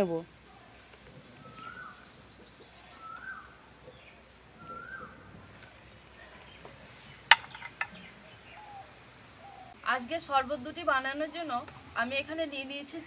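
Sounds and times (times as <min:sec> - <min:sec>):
bird calling: 0:00.6 - 0:09.9.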